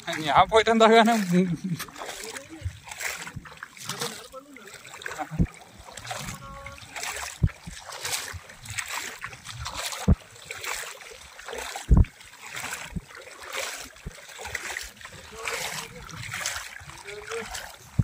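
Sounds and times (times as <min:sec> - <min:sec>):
water sloshing around legs: 0:00.0 - 0:18.0
low thumps: 0:09.5 - 0:10.3, 0:11.9 - 0:12.1.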